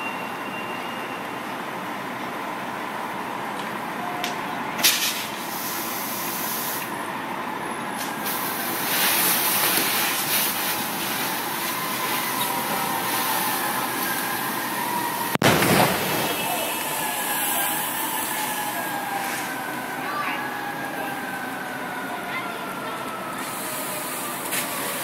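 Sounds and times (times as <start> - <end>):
hiss of water and steam: 4.8 - 6.9, 8.0 - 14.6, 16.4 - 19.6, 23.4 - 25.0
fire hose spraying water: 4.8 - 7.0, 8.0 - 20.2, 23.3 - 25.0.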